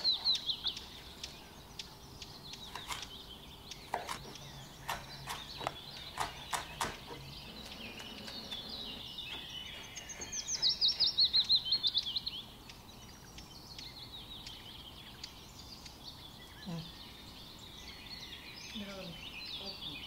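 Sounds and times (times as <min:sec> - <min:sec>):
songbird singing: 0:00.0 - 0:20.0.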